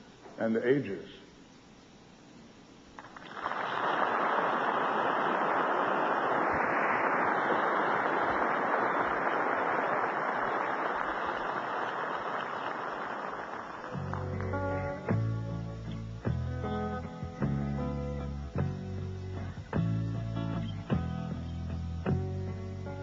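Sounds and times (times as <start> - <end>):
audience applauding: 3.0 - 15.3
strummed guitar music: 13.9 - 23.0.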